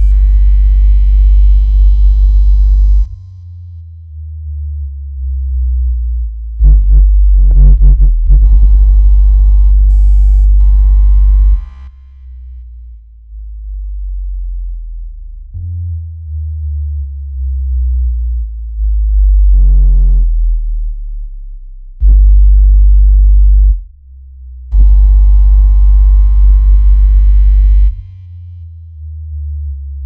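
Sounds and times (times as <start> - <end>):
loud buzzy tone: 0.0 - 3.3, 6.6 - 12.4, 22.0 - 23.9, 24.7 - 28.4
deep bass tones stepping in pitch: 0.0 - 30.0.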